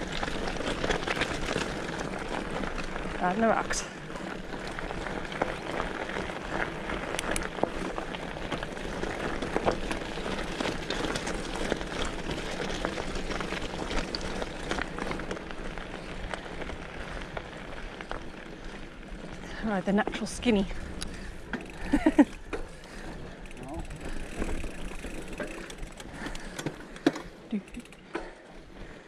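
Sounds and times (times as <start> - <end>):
bike rattling: 0.0 - 29.0
bike tyres crunching over gravel: 0.0 - 29.0.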